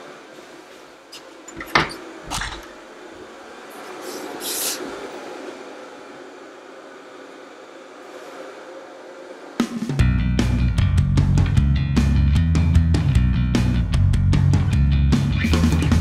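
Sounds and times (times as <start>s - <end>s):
short hiss: 4.0s - 4.9s.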